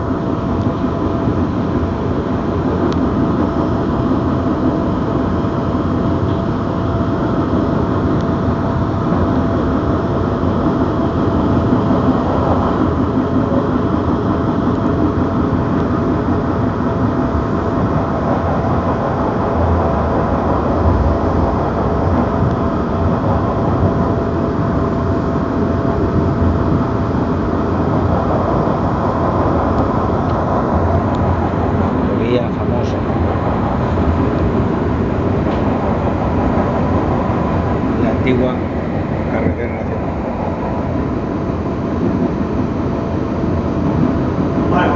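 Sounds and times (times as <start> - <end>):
faint steady whine: 0.0 - 44.9
train wheels rumbling on track: 0.0 - 44.9.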